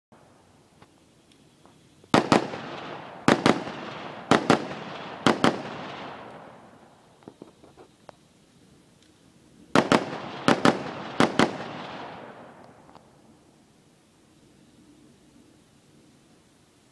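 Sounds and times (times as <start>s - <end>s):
rifle shots with echo: 2.1s - 6.9s, 9.7s - 12.9s.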